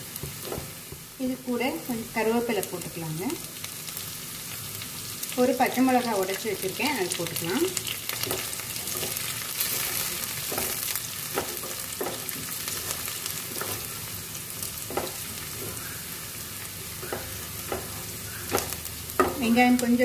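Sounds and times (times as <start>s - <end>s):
onion sizzling in hot oil: 0.0s - 20.0s
spatula scraping a pan: 7.8s - 19.6s.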